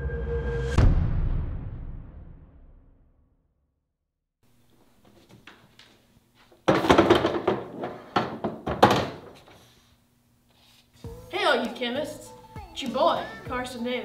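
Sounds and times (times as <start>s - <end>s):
corkboard thuds and clatter: 6.6s - 9.6s.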